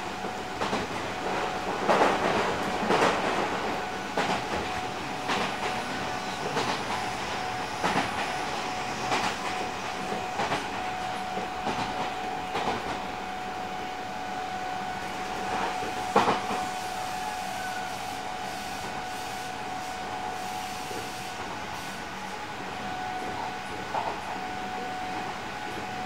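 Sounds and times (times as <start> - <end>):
train wheels clacking over rail joints: 0.6 - 8.4.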